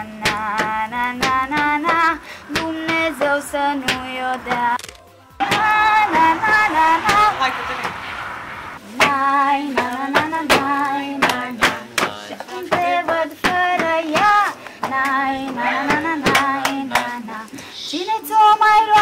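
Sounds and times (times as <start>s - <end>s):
group singing in unison: 0.0s - 7.4s, 8.8s - 19.0s
people clapping in time: 9.9s - 17.3s.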